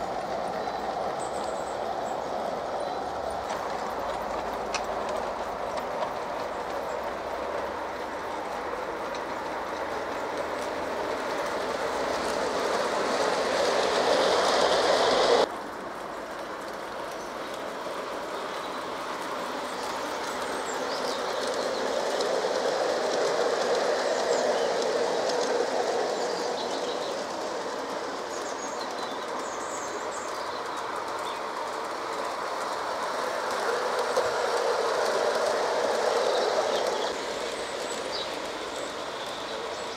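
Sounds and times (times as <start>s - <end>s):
model train wheels clattering: 0.0s - 39.9s.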